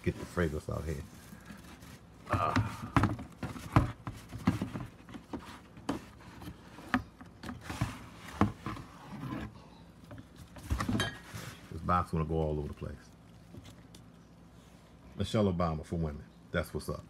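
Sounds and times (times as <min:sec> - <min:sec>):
bubble wrap crinkling: 0:00.0 - 0:02.3
knocks against cardboard box: 0:02.3 - 0:06.1.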